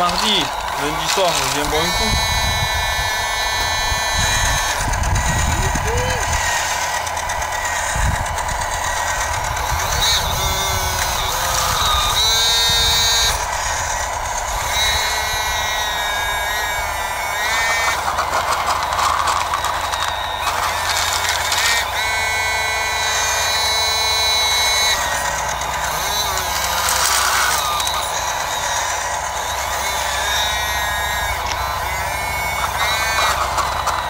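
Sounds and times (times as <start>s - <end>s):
hydraulic pump whining: 0.0s - 34.0s
steady hum: 0.0s - 34.0s
bucket scraping gravel: 17.5s - 21.8s, 32.6s - 34.0s.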